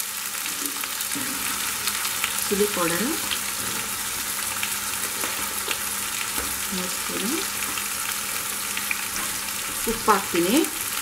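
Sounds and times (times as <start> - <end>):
vegetables sizzling in hot oil: 0.0 - 11.0
small crackles: 3.2 - 11.0.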